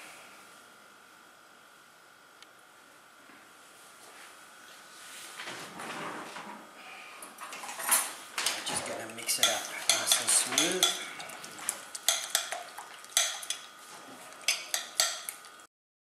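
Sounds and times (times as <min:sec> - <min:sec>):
fork clinking against glass bowl: 0:09.3 - 0:13.7, 0:14.4 - 0:15.4.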